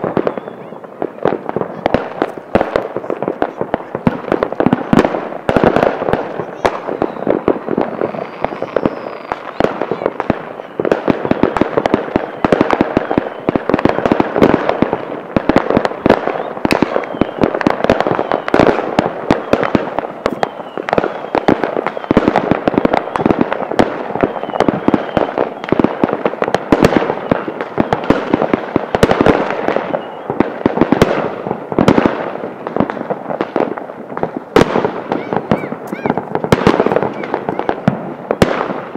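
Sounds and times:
faint firework whistles: 0.0s - 2.5s, 6.2s - 15.1s, 16.0s - 26.0s, 26.8s - 28.4s, 29.2s - 30.7s, 35.1s - 38.6s
fireworks crackling and banging: 0.0s - 38.9s.

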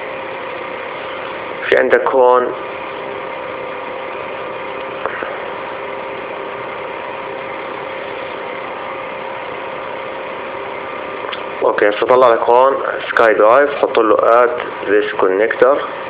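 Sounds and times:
steady background hum and hiss: 0.0s - 16.0s
short click: 11.3s - 11.5s.

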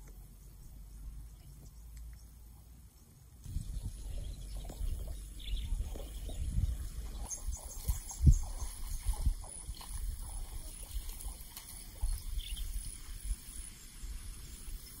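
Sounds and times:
faint bird chirps: 0.1s - 15.0s
low rumble: 3.4s - 8.6s.

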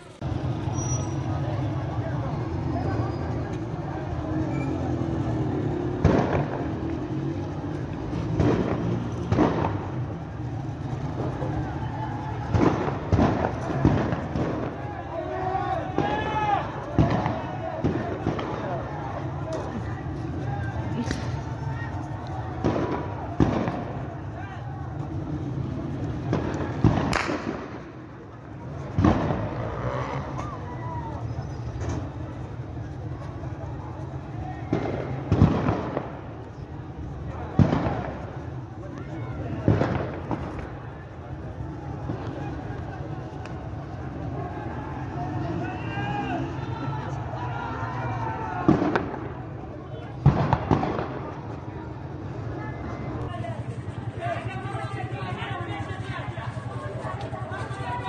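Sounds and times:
crowd rumble and voices: 0.0s - 58.0s
sharp bangs echoing in street: 0.0s - 58.0s
loud sharp bang echoing: 26.3s - 27.9s.

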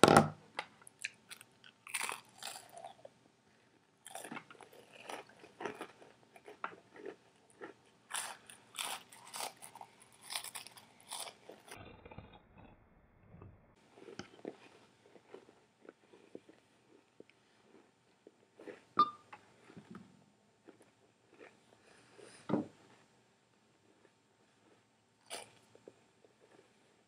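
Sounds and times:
crackers crunching: 0.9s - 3.1s, 4.0s - 12.4s, 13.8s - 18.9s, 23.8s - 26.9s
open-mouthed chewing: 0.9s - 3.1s, 4.0s - 12.4s, 13.8s - 20.0s, 20.6s - 22.5s, 23.7s - 27.0s.

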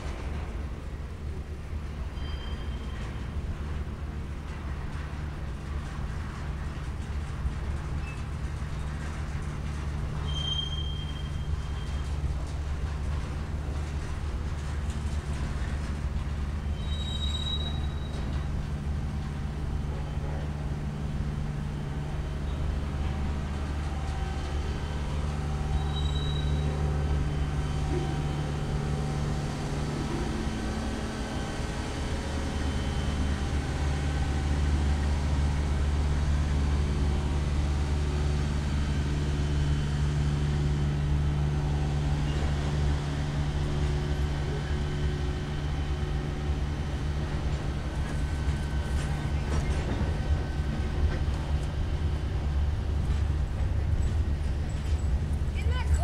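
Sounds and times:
freight train rumbling on rails: 0.0s - 56.0s
high squeal: 2.2s - 3.0s, 10.2s - 12.0s, 16.7s - 18.2s, 25.8s - 26.8s.

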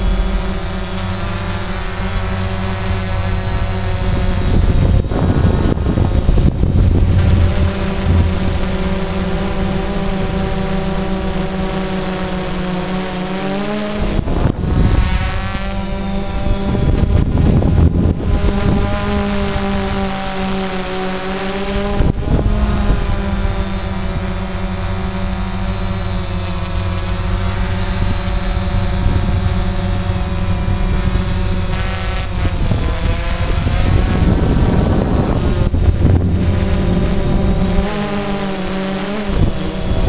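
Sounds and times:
low gusty rumble: 0.0s - 12.8s, 14.0s - 20.7s, 21.7s - 40.0s
drone propellers whining: 0.0s - 40.0s.

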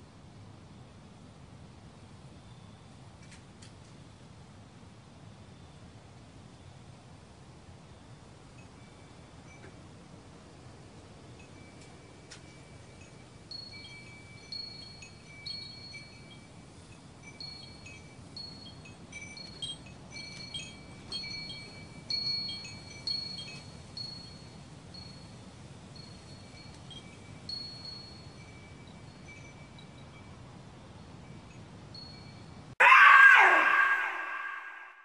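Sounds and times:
wind chimes ringing: 11.4s - 25.4s, 26.0s - 30.4s.

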